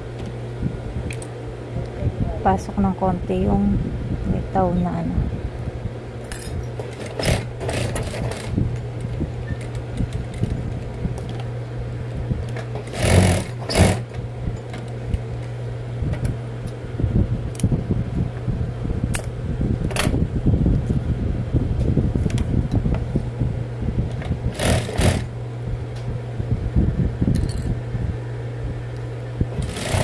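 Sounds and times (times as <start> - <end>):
sewing machine motor humming: 6.8 - 8.6, 12.7 - 14.2, 24.5 - 25.3, 29.5 - 30.0.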